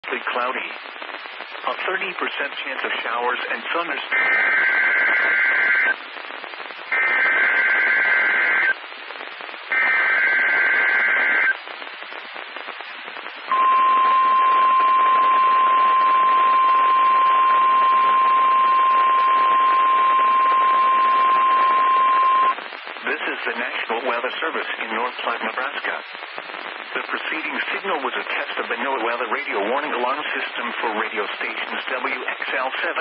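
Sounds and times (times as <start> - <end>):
static hiss: 0.0 - 33.0
steady warning tone: 13.5 - 22.5.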